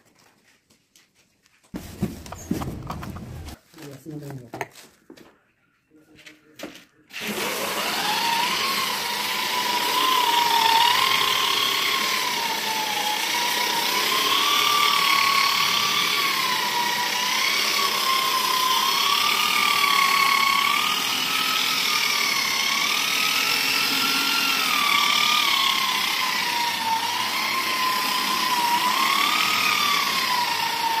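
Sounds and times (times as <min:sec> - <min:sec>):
electric sander whining: 0:07.2 - 0:31.0.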